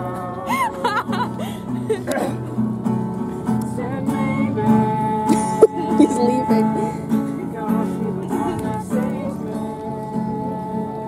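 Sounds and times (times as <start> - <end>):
strummed acoustic guitar music: 0.0 - 11.0
people talking: 5.3 - 6.9.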